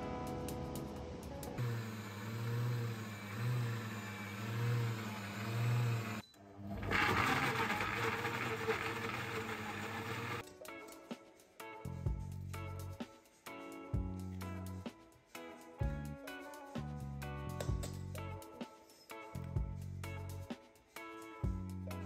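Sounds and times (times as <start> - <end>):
blender grinding: 1.6 - 10.4.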